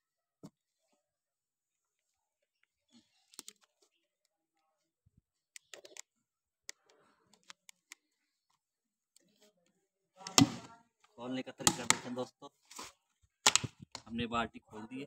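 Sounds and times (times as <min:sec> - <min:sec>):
man speaking: 0:11.2 - 0:12.6, 0:14.0 - 0:15.0
plastic lid clicking and snapping: 0:13.5 - 0:14.0.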